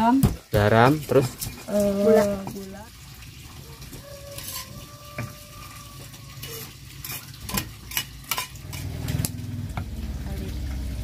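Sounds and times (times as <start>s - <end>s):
ladle scraping against pot: 4.4s - 9.3s.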